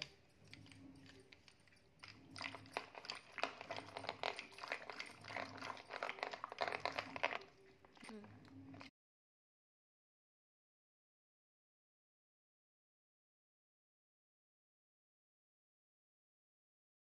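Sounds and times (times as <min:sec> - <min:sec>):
cream churning squelching: 0:00.0 - 0:08.9.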